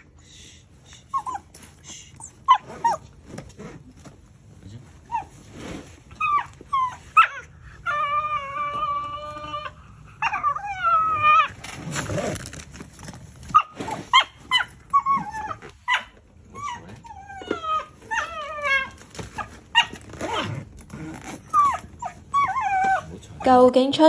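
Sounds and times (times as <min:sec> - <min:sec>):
dog screaming and yelping: 0:02.2 - 0:03.2, 0:06.1 - 0:12.3, 0:13.5 - 0:23.4.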